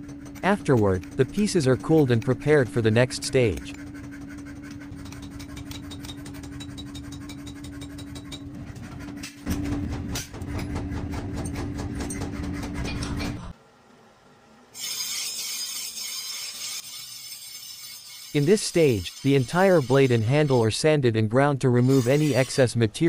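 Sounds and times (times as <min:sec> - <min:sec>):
grinding wheel grinding steel: 0:00.0 - 0:08.8, 0:14.8 - 0:20.7, 0:21.8 - 0:23.0
steady machine hum: 0:00.0 - 0:14.8.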